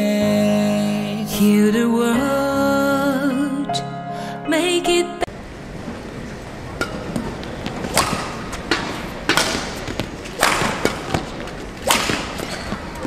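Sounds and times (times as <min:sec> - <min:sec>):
badminton racket hits: 0:06.8 - 0:13.0.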